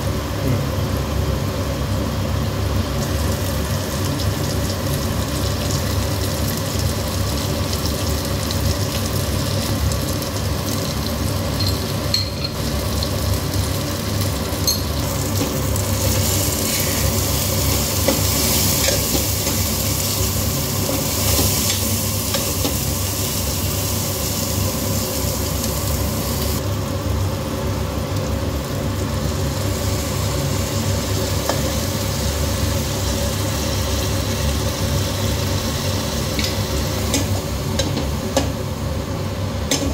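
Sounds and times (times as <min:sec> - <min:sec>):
vegetables sizzling in oil: 0:01.5 - 0:39.9.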